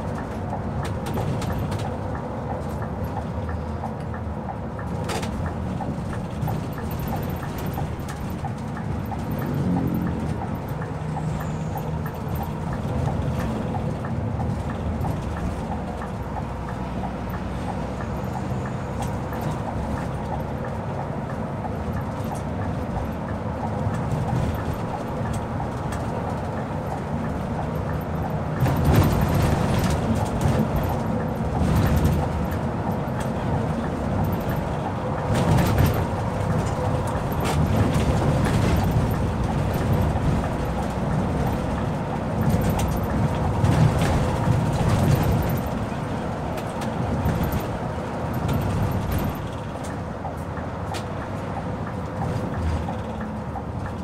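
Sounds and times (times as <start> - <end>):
bus diesel engine running: 0.0 - 54.0
road noise: 0.0 - 54.0.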